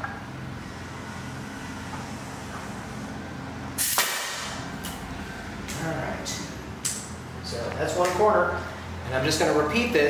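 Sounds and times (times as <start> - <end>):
steady low hum: 0.0 - 10.0
hiss of released air: 3.8 - 4.5
pneumatic nail gun firing: 3.8 - 4.6.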